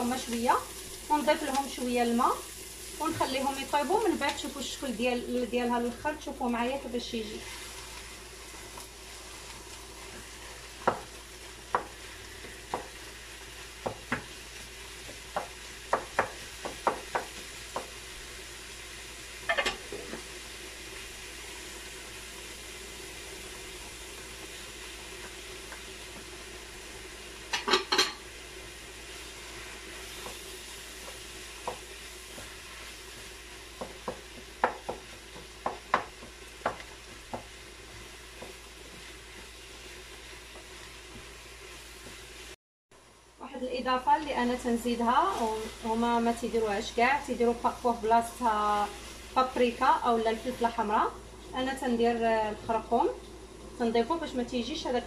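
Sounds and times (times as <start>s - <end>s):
meat and onion sizzling in a pan: 0.0s - 55.0s
wooden spoon knocking on a pan: 10.8s - 13.0s, 13.8s - 14.3s, 15.0s - 18.0s, 31.0s - 32.6s, 33.8s - 37.6s.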